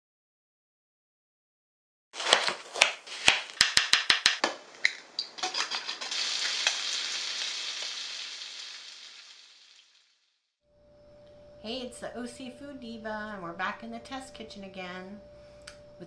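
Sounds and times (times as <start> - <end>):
kitchen taps and clicks: 3.3 - 6.1
bacon sizzling in a frying pan: 5.4 - 10.2.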